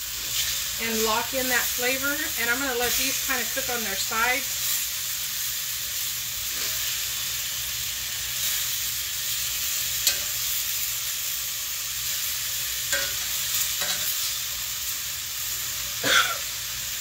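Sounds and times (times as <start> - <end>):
meat sizzling in a skillet: 0.0 - 17.0
metal tongs clicking on pan: 9.8 - 10.7, 12.9 - 14.4.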